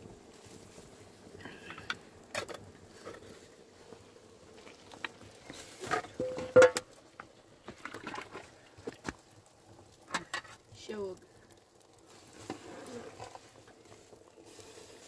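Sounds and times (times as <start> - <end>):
twigs snapping and crackling in fire: 0.3 - 15.0.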